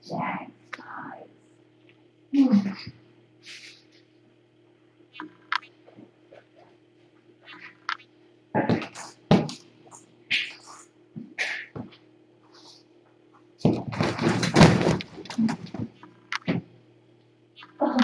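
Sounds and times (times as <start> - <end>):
steady low hum: 0.0 - 18.0
thumps and knocks: 13.6 - 16.7.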